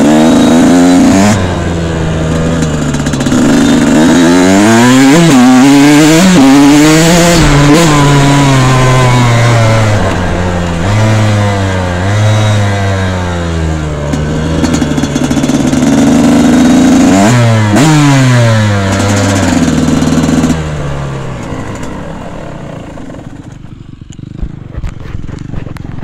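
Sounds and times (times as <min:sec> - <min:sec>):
dirt bike engine revving: 0:00.0 - 0:26.0.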